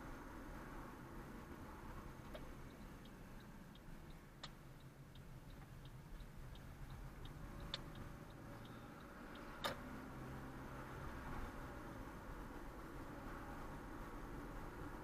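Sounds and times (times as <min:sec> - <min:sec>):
turn signal clicking: 0:02.2 - 0:09.9.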